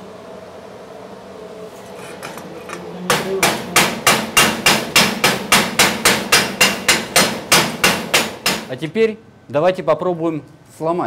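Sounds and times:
chipping hammer striking metal: 3.1s - 8.8s.

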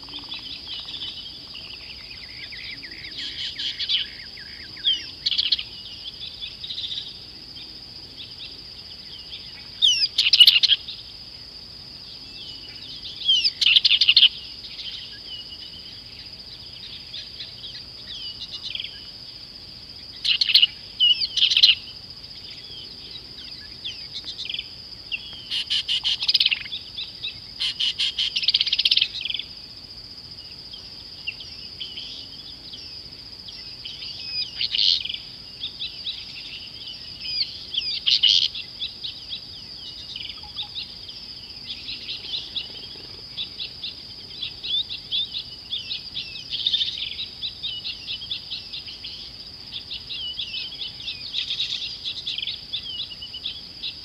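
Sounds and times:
wild birds chirping: 0.0s - 54.0s.

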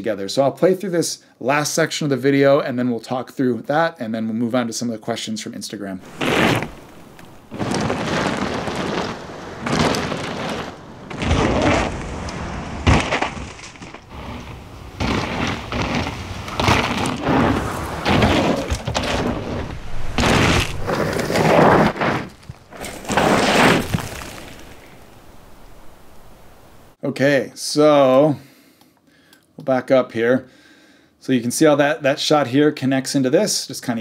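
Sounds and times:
bike tyres skidding on dirt: 6.0s - 27.0s
sharp crack: 6.0s - 27.0s.

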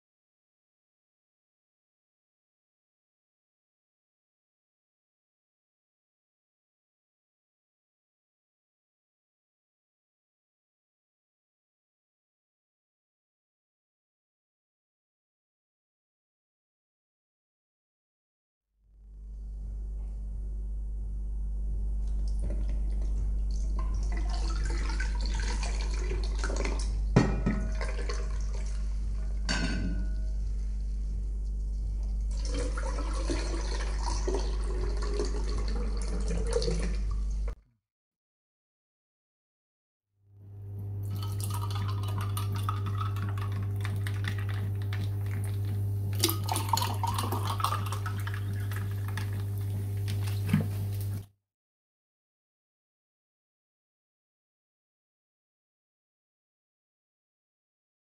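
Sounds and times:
low hum: 18.9s - 24.2s, 26.9s - 32.9s
liquid pouring over ice: 23.9s - 27.0s, 32.3s - 37.2s, 41.0s - 51.2s
glass clink: 29.5s - 30.2s.

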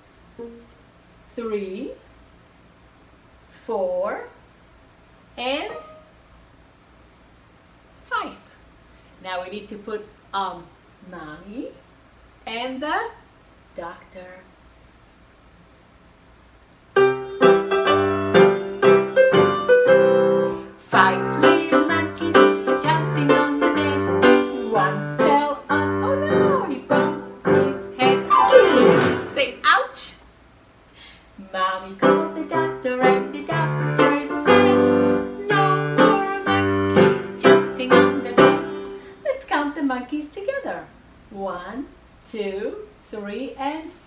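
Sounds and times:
electronic keyboard piano melody: 5.7s - 6.1s, 17.0s - 20.6s, 26.1s - 29.3s.

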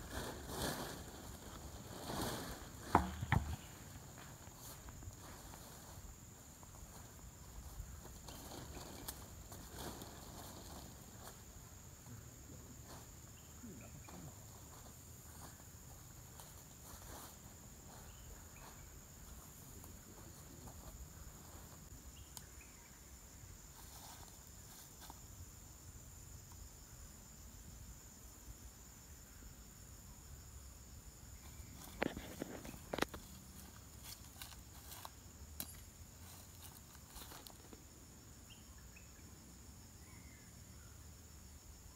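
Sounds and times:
tarp being handled: 0.0s - 3.2s
rustling over dry leaves: 0.0s - 11.8s, 31.5s - 37.8s
high-pitched insect chorus: 0.0s - 41.9s.

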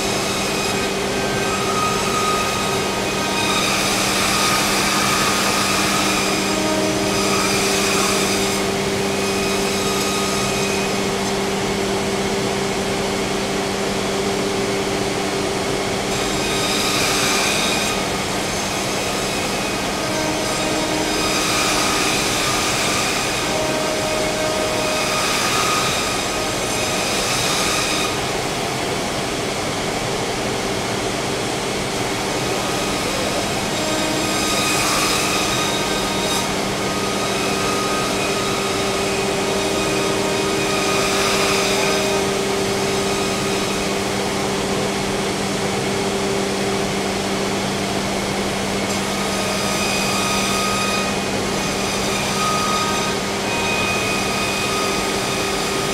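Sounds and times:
cnc router humming and whining: 0.0s - 55.9s.

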